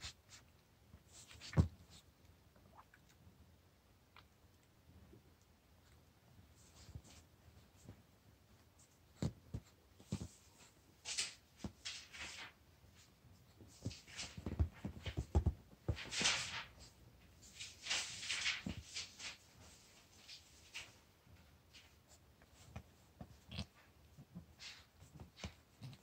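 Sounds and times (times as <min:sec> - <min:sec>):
puppy scratching and rustling: 0:00.0 - 0:02.1, 0:05.8 - 0:26.0.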